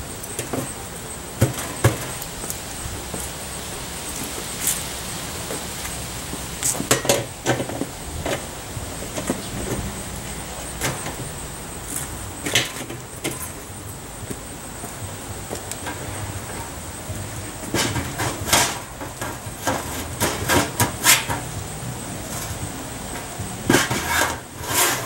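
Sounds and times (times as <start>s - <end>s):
metal knocks and scraping clanks: 1.4s - 3.3s, 6.6s - 13.7s, 15.5s - 16.8s, 17.4s - 21.6s, 22.2s - 25.0s.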